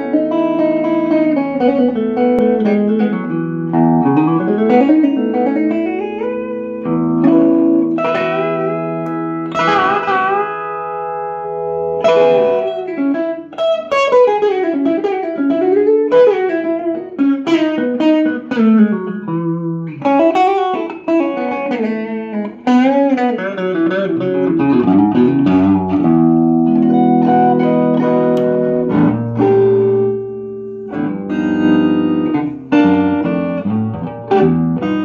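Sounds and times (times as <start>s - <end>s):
electric guitar lead lines: 0.0s - 35.0s.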